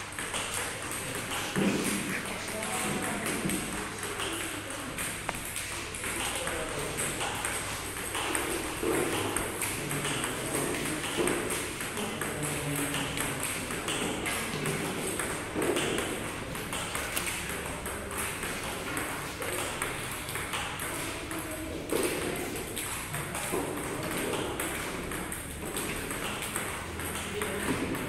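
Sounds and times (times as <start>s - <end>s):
paddle hitting table tennis balls: 0.0s - 28.0s
ball bouncing on table: 0.2s - 28.0s.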